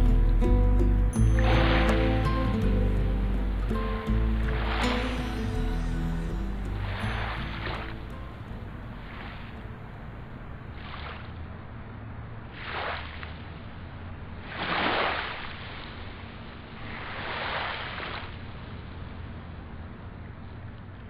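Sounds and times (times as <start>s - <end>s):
low steady hum: 0.0s - 12.5s
sea waves washing in: 1.2s - 18.9s.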